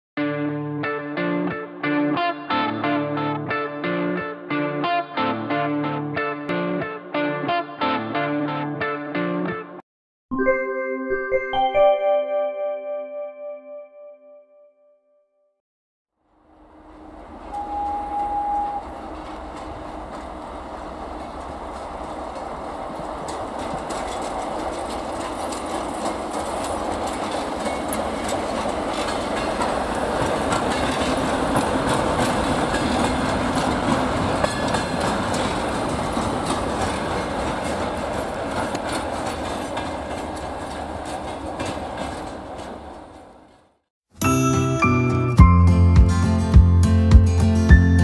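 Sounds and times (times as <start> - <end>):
brief steady tone: 17.5 - 19.0
wheels clattering over rail joints: 18.6 - 43.6.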